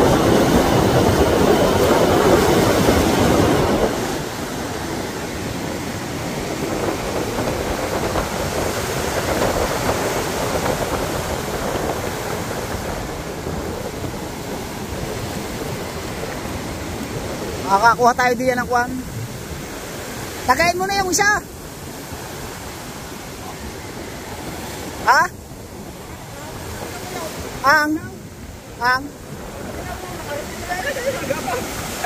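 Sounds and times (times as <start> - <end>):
heavy surf breaking on beach: 0.0 - 32.0.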